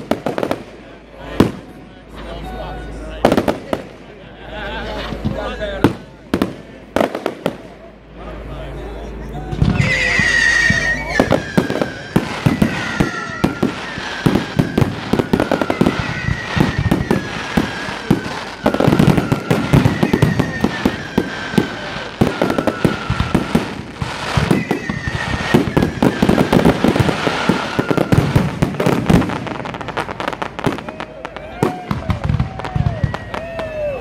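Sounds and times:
fireworks bangs and crackling: 0.0s - 8.6s, 9.4s - 34.0s
high falling whistle: 9.7s - 21.9s.

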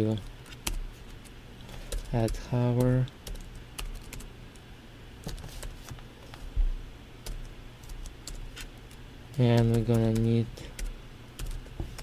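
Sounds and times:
keyboard typing: 1.9s - 4.3s, 7.2s - 12.0s.

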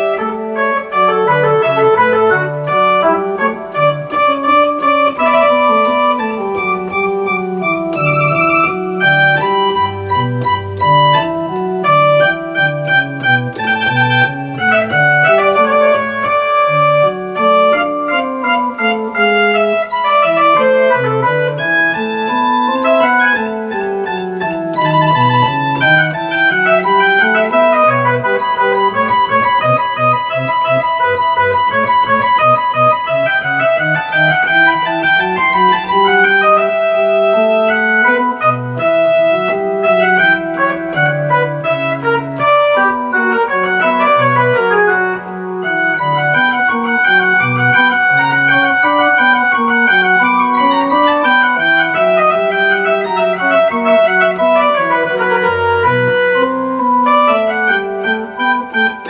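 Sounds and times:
organ playing baroque piece: 0.0s - 59.0s.

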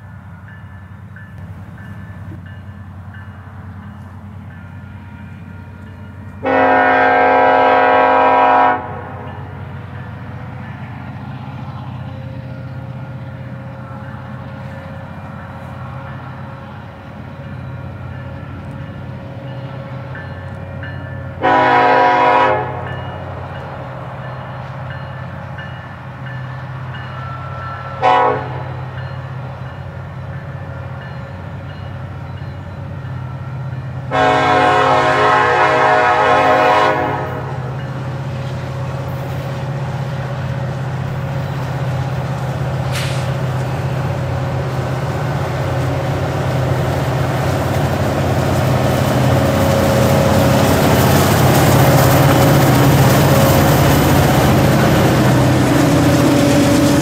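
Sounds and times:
locomotive air horn: 6.4s - 9.3s, 21.4s - 22.9s, 27.4s - 28.8s, 34.1s - 37.7s.

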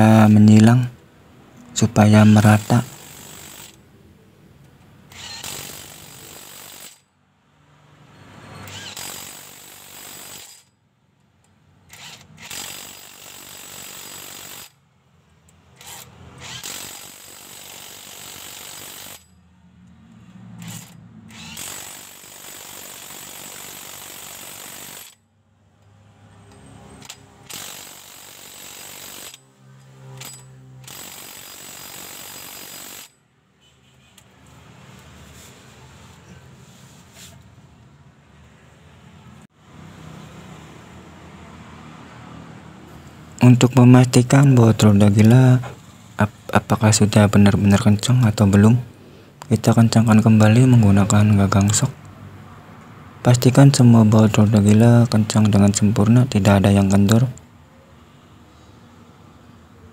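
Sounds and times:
impact wrench hammering bolts: 5.1s - 7.0s, 8.6s - 10.7s, 11.9s - 14.8s, 15.4s - 19.4s, 20.6s - 25.2s, 26.5s - 33.2s.

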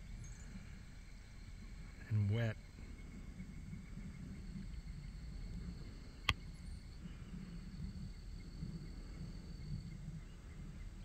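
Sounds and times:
insects trilling: 0.0s - 11.0s
low background rumble: 0.0s - 11.0s.

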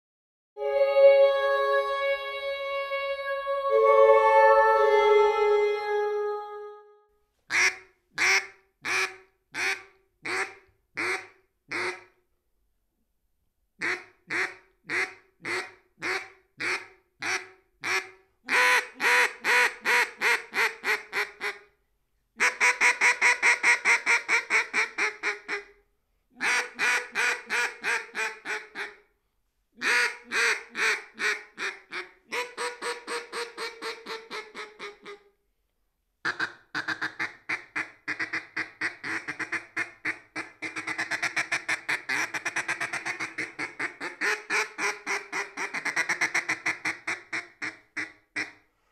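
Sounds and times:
duck call quacking: 7.5s - 12.1s, 13.8s - 21.6s, 22.4s - 25.7s, 26.4s - 29.0s, 29.8s - 35.2s, 36.2s - 48.6s.

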